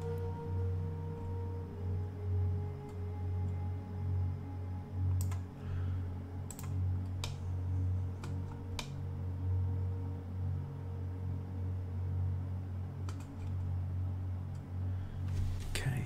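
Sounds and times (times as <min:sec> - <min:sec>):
steady low hum: 0:00.0 - 0:16.0
keyboard keys clicking: 0:06.5 - 0:07.4.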